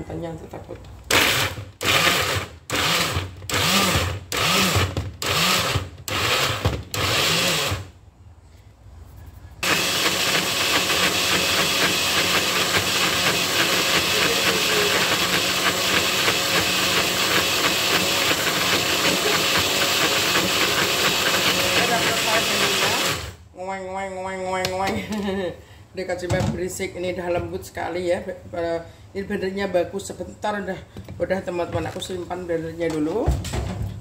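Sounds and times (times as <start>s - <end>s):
electric blender grinding: 1.1s - 7.9s, 9.6s - 23.4s.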